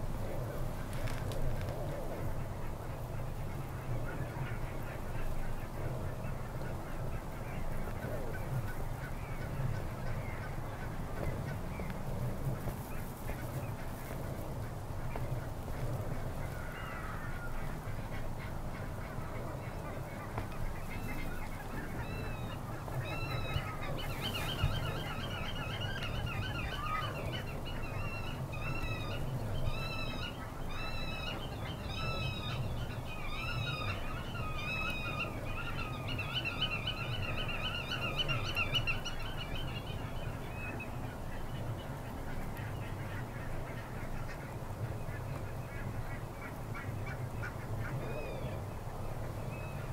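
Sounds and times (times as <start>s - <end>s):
geese calling: 15.0s - 48.6s.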